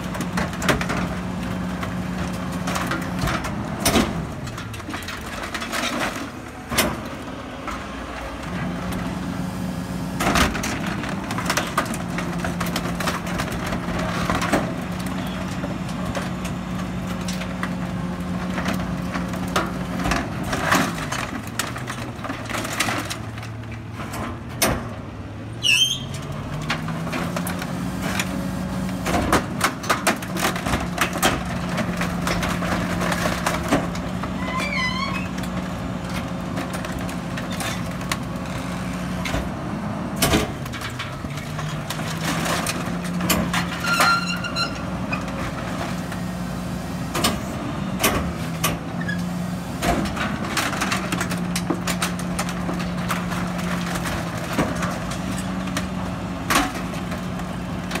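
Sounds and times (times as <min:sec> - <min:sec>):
debris cracking and crushing: 0:00.0 - 0:09.2, 0:10.2 - 0:24.9, 0:25.8 - 0:46.4, 0:47.1 - 0:58.0
garbage truck engine revving: 0:00.0 - 0:58.0
high squeals: 0:25.6 - 0:26.2.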